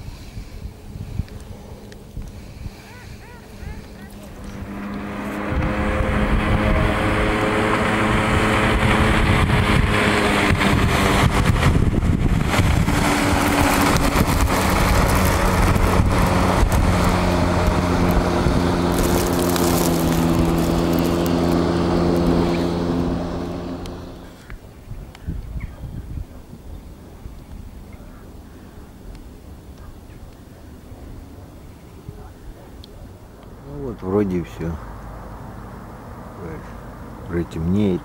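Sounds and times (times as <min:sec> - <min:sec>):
jet ski engine running: 0:00.0 - 0:24.8.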